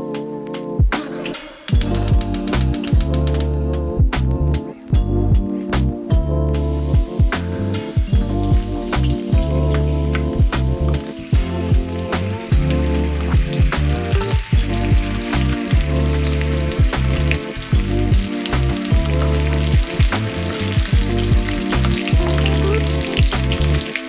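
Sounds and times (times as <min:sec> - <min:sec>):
background music with beat: 0:00.0 - 0:24.0
shrimp sizzling in oil: 0:06.7 - 0:24.0.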